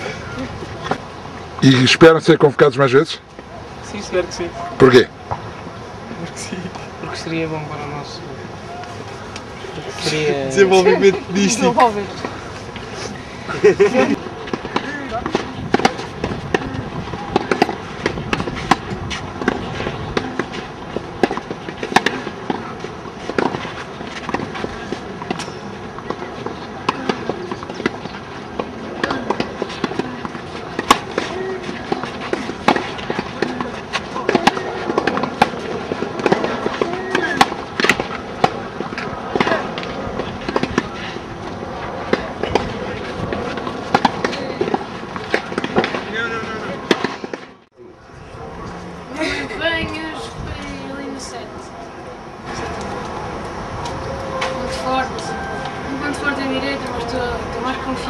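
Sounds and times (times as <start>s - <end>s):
tennis balls struck by rackets: 13.9s - 47.6s.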